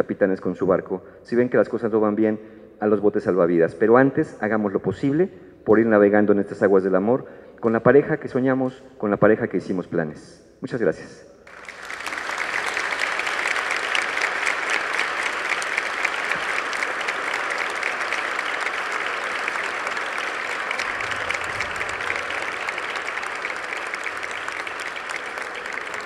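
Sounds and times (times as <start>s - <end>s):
audience applauding: 11.5s - 26.0s.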